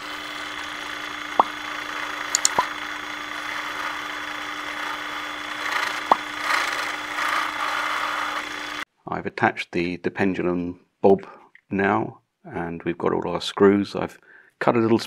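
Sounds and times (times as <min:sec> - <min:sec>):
power drill cutting vinyl record: 0:00.0 - 0:08.9
sharp clicks from drilling: 0:00.5 - 0:08.8.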